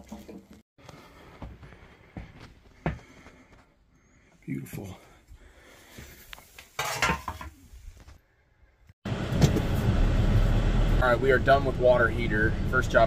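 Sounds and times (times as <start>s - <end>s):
vehicle engine rumble from cab: 9.1s - 13.0s.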